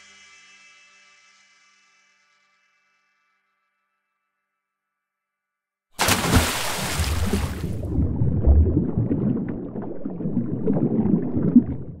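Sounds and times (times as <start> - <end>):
water rushing and gurgling: 6.0 - 12.0
low rumble: 7.0 - 12.0.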